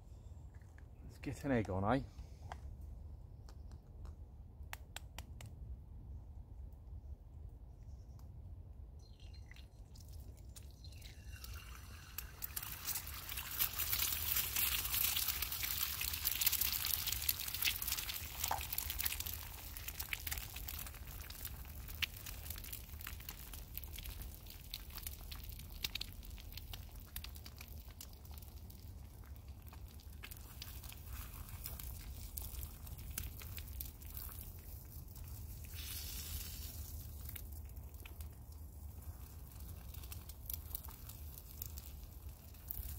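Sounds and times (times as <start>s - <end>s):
egg sizzling in a hot pan: 10.7s - 26.1s, 35.4s - 37.4s.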